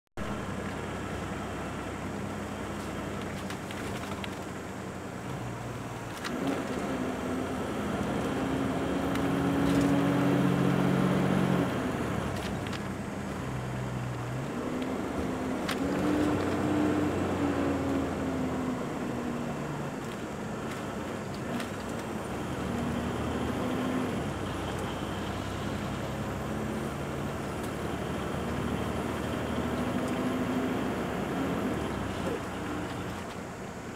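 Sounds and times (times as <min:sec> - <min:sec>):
engine hum: 0:00.2 - 0:33.9.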